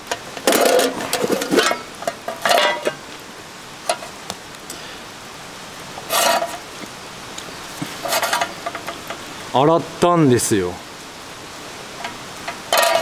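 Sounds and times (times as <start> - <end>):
steady low hiss: 0.0 - 13.0
utensil scraping metal tin: 0.4 - 3.0, 6.0 - 6.7, 7.9 - 9.2, 12.7 - 13.0.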